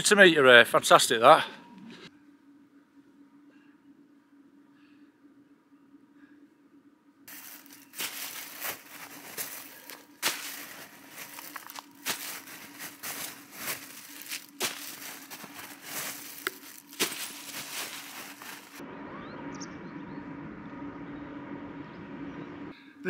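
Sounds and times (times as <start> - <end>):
faint steady hum: 0.0 - 23.0
crunching and crinkly rustling: 7.3 - 18.8.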